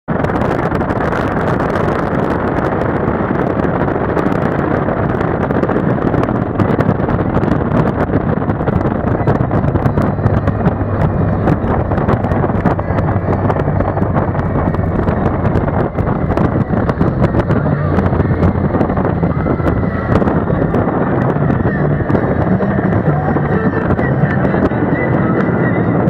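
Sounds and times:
wind rushing over microphone: 0.1 - 26.0
motorcycle engine running: 0.8 - 26.0.

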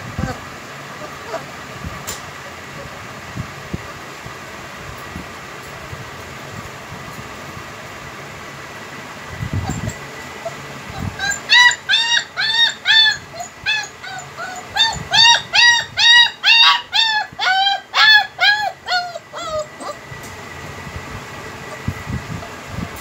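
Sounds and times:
puppies whining: 0.1 - 1.6, 9.5 - 20.3, 21.5 - 22.6.

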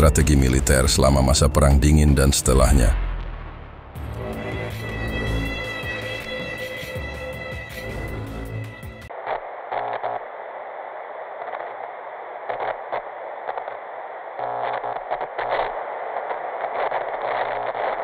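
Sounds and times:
buzzing crackle bursts: 0.0 - 18.0
static hiss: 9.0 - 18.0.

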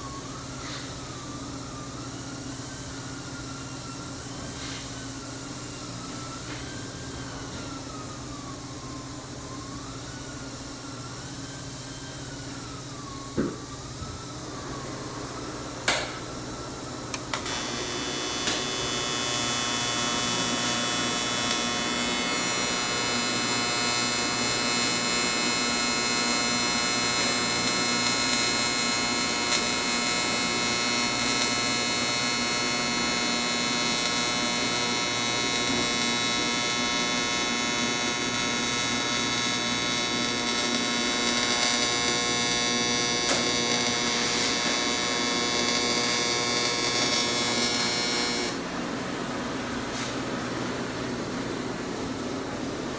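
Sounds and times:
welding arc electric buzz: 15.8 - 16.3, 17.1 - 48.7
welding arc crack: 15.9 - 16.3, 17.1 - 48.6.

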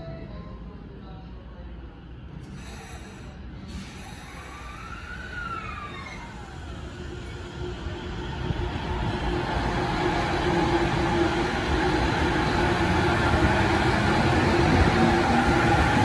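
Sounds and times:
train wheels rumbling on rails: 3.7 - 16.0.

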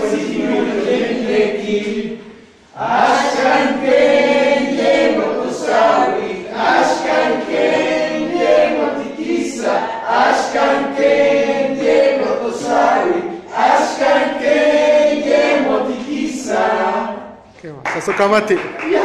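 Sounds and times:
group singing unaccompanied: 0.0 - 17.5.

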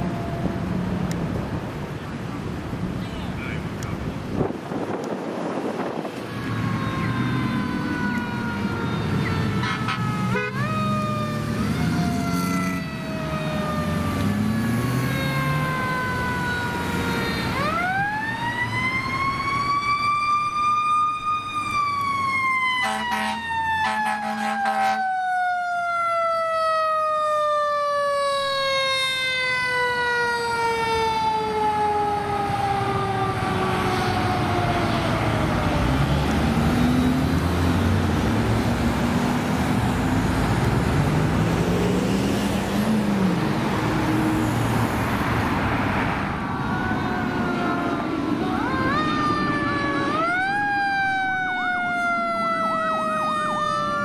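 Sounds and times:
fire engine siren: 0.0 - 2.3, 5.0 - 54.0
fire truck horn blasts: 9.2 - 10.8, 22.8 - 25.2.

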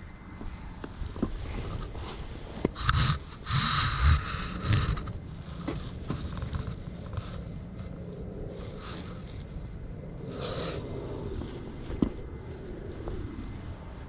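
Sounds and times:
clothing rustling on microphone: 1.1 - 9.6.

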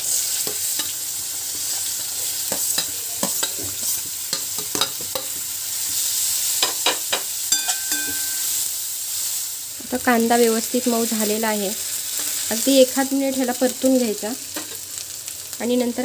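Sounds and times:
onion sizzling in hot oil: 0.0 - 16.0
spatula clinking against pan: 4.3 - 5.4, 6.6 - 8.6.

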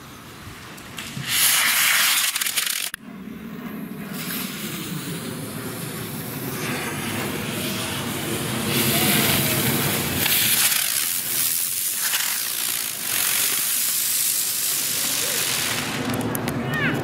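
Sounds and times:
fireworks spraying sparks with hiss: 0.8 - 3.0, 4.1 - 17.0
sharp firework cracks: 1.0 - 3.0, 8.0 - 17.0.

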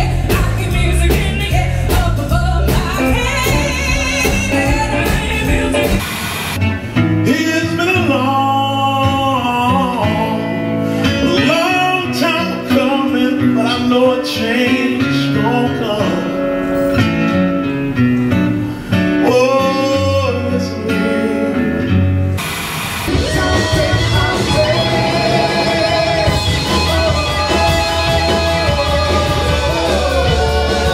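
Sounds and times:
guitar accompaniment: 0.0 - 30.9
man singing: 7.2 - 16.5, 19.2 - 21.6, 23.1 - 30.9.

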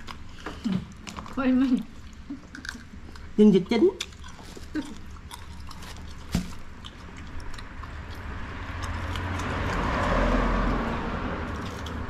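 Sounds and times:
vehicle passing by: 7.2 - 12.0.

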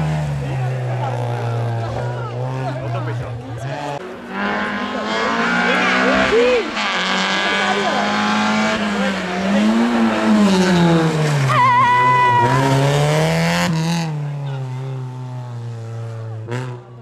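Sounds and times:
rally car engine revving: 0.0 - 17.0
tire squeal: 11.4 - 13.0.

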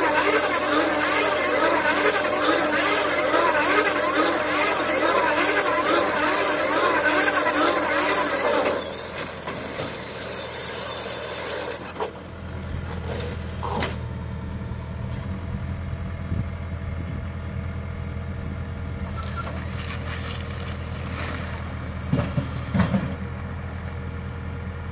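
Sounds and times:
hiss: 0.0 - 11.9
low engine hum: 11.8 - 24.9.

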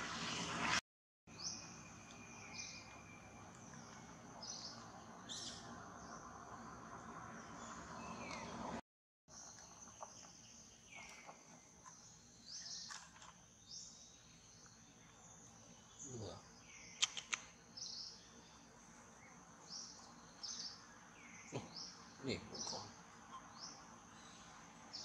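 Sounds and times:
birds chirping: 1.3 - 25.0
sharp clicks: 17.0 - 17.5.

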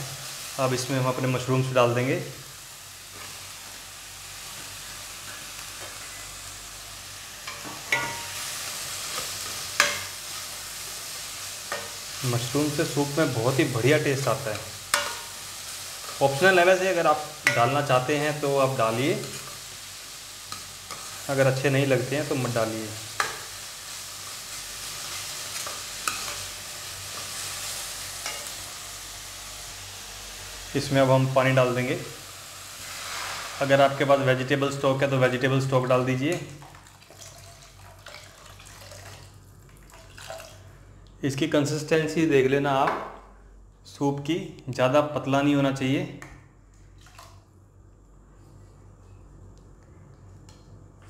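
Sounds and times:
vegetables sizzling in a wok: 0.0 - 39.4
spatula scraping and tapping pan: 7.5 - 8.4, 9.1 - 10.2, 14.5 - 15.4, 25.5 - 26.5, 28.2 - 28.6
spatula scraping and knocking pan: 14.5 - 15.4.

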